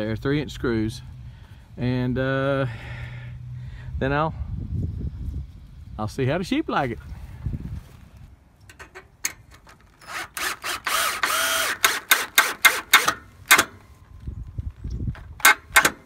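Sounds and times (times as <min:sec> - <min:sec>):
drill clutch clicks: 0:08.6 - 0:13.8, 0:14.8 - 0:16.0
drill motor running: 0:10.0 - 0:13.7.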